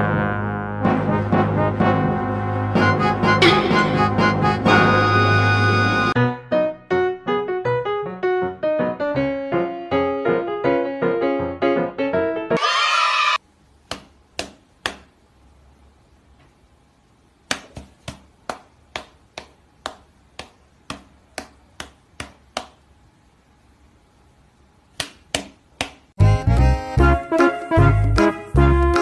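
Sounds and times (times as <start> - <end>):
hand and paws slapping: 13.8 - 15.1, 17.4 - 22.8, 24.9 - 26.1.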